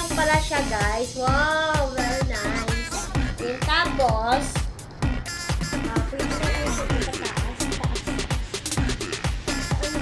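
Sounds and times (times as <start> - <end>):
steady drum beat: 0.0 - 10.0
person singing: 5.9 - 8.0.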